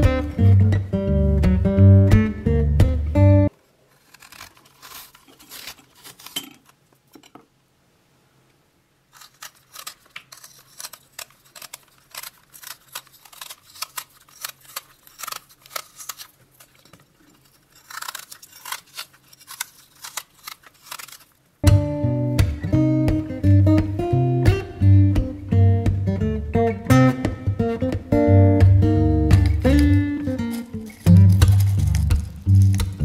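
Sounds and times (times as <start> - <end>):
knife scraping fruit skin: 3.9 - 6.8, 9.1 - 21.4, 29.4 - 33.0.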